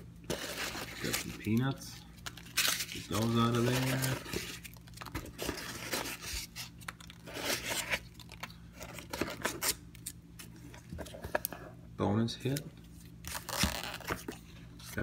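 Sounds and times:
packing peanuts and cardboard rustling: 0.3 - 9.8.

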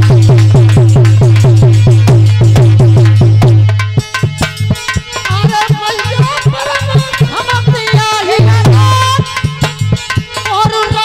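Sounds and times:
hand drum rhythm: 0.0 - 11.0
man singing: 5.3 - 9.8.

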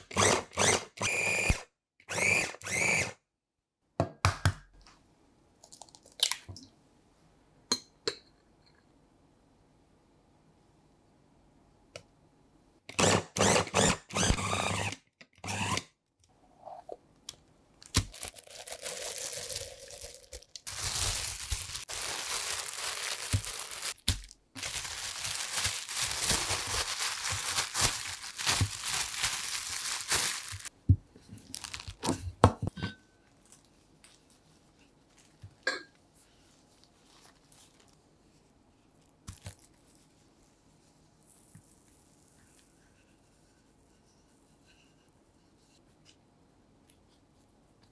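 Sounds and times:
food processor pulsing: 0.0 - 3.1, 12.9 - 15.8
plastic bag crinkling: 17.8 - 30.7, 31.4 - 32.1.

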